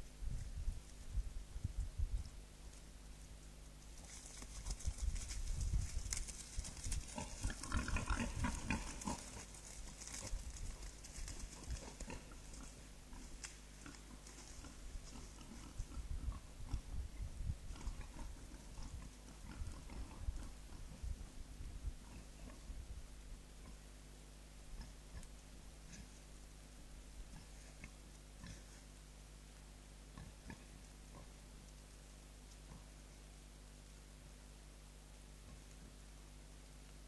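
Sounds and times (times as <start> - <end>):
low steady hum: 0.0 - 37.0
scattered crackling: 4.0 - 15.6
wild boars grunting: 6.1 - 17.0, 17.6 - 22.8, 24.7 - 26.4, 27.1 - 29.0, 30.0 - 31.6.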